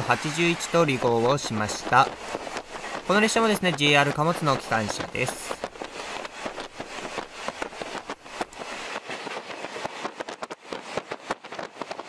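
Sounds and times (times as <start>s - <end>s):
passing freight train rumble: 0.0s - 9.0s.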